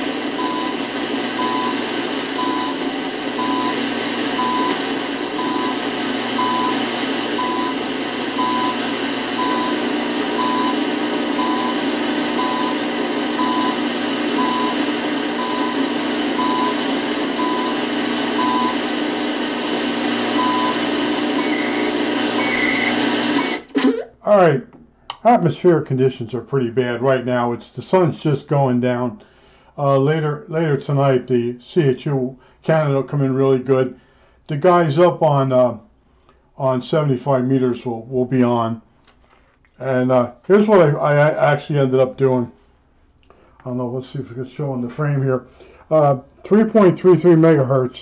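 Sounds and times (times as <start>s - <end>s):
radio time signal beeps: 0.0s - 23.8s
heavy hissing static: 0.0s - 24.6s
high-pitched data warble: 21.4s - 24.0s.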